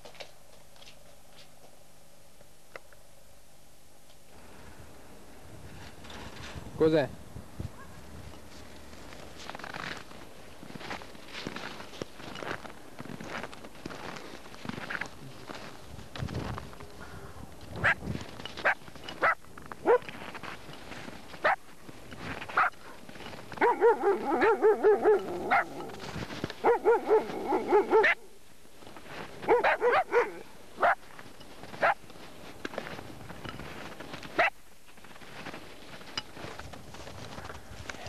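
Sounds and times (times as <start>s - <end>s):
dog barking: 7.8s - 8.0s, 18.6s - 20.1s, 22.6s - 23.0s, 23.6s - 25.9s, 26.6s - 28.3s, 29.4s - 31.0s, 31.8s - 32.0s.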